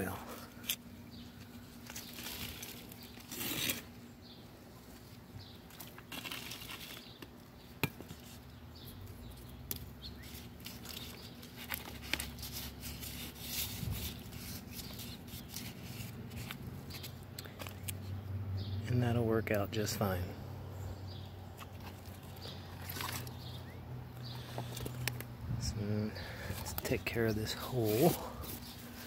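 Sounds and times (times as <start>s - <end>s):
trowel scraping soil: 1.9s - 3.9s, 27.5s - 29.0s.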